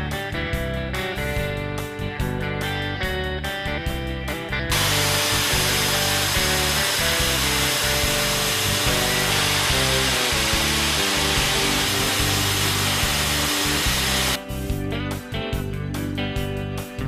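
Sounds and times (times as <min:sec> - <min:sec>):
guitar music: 0:00.0 - 0:17.0
power drill boring into tile: 0:04.7 - 0:14.4
vacuum hose rushing: 0:04.7 - 0:14.4.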